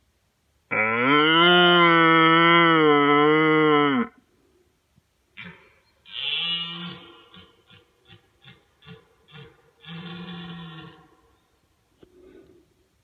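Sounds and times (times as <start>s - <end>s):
deer roar call: 5.4s - 11.4s.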